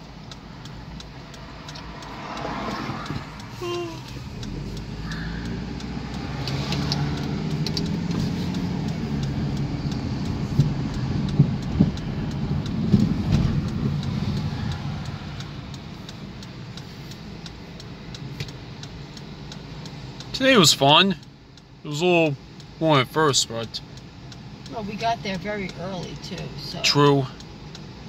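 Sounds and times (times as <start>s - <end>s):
car engine and tyre rumble: 0.0s - 28.0s
faint regular ticking: 0.0s - 28.0s
sharp thumps: 4.1s - 16.6s.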